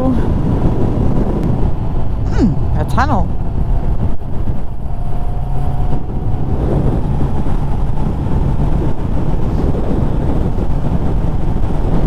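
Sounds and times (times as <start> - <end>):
road noise: 0.0 - 12.0.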